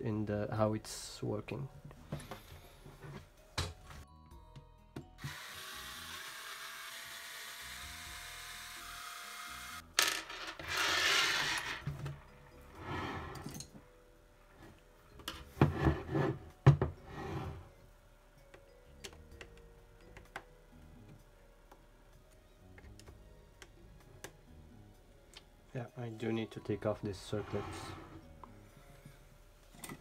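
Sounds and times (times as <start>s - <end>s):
cordless drill running: 5.2s - 9.8s.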